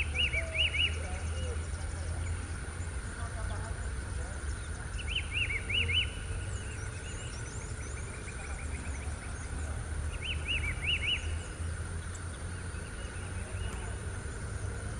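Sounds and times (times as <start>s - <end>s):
whistled bird phrase: 0.0s - 1.7s, 4.6s - 11.5s
low steady rumble: 0.0s - 14.9s
small birds chirping: 0.0s - 14.9s.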